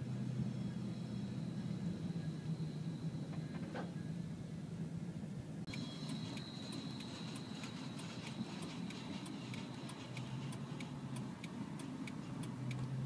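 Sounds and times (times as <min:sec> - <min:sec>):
engine and road hum: 0:00.0 - 0:13.0
car flasher ticking: 0:05.7 - 0:13.0.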